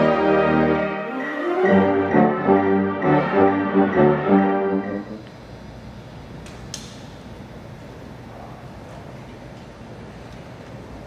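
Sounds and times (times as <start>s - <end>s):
brass band playing chords: 0.0s - 5.3s.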